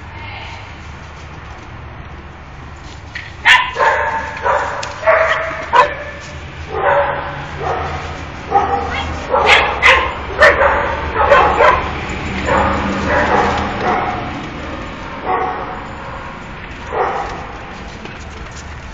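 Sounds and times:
puppies yipping and barking: 0:03.4 - 0:14.4.

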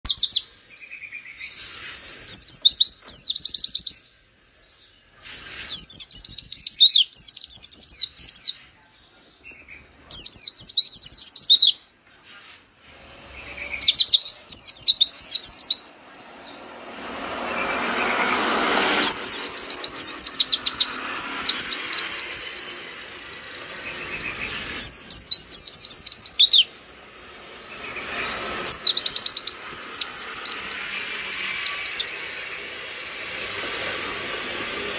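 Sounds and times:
steady background noise: 0:00.0 - 0:34.9
bird chirping fast high notes: 0:12.9 - 0:33.5.

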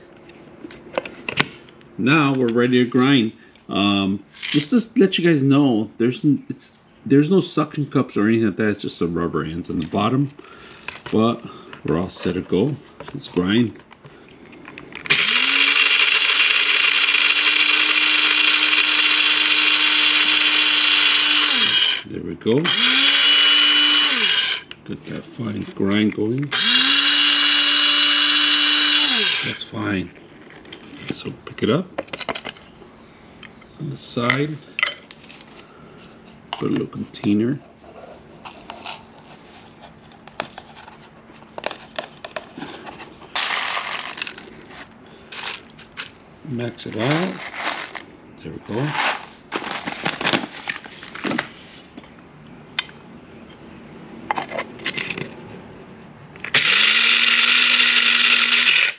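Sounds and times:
coffee grinder motor whirring: 0:15.0 - 0:24.8, 0:26.5 - 0:29.6, 0:56.4 - 0:58.9.

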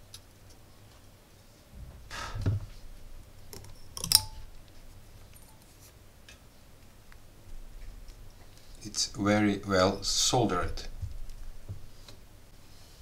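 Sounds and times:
metal clip clicking: 0:03.6 - 0:04.5
soft rustle and bump: 0:10.8 - 0:12.3.

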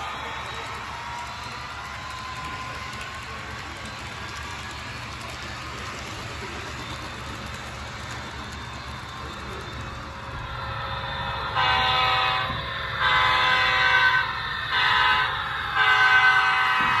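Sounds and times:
low engine rumble: 0:00.0 - 0:15.8
model locomotive horn blasts: 0:11.2 - 0:17.0.

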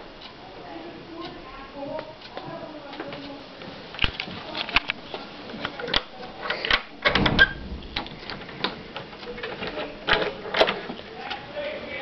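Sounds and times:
sharp clicks and knocks: 0:06.7 - 0:11.0.

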